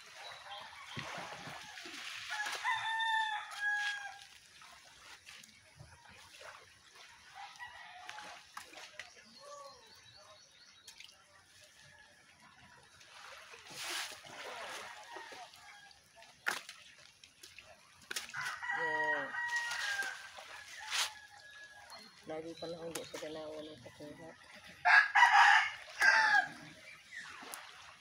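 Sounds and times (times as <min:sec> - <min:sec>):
rooster crowing: 0:01.6 - 0:04.2, 0:18.3 - 0:21.5, 0:24.8 - 0:26.6.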